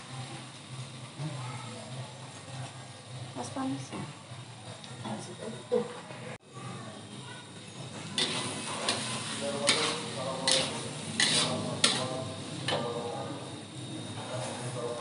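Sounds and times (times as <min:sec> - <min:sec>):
light sizzle: 0:00.0 - 0:06.0, 0:07.2 - 0:13.5
spatula scraping pan: 0:08.2 - 0:12.9.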